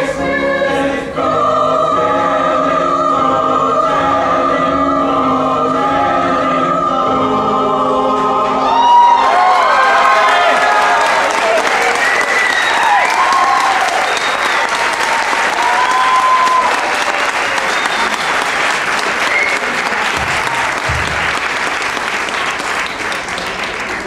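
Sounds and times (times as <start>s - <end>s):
audience applauding: 8.6s - 24.0s.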